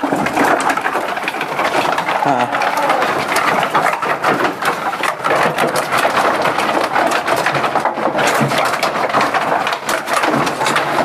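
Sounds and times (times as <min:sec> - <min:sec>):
sheep hooves clattering on slats: 0:00.0 - 0:11.0.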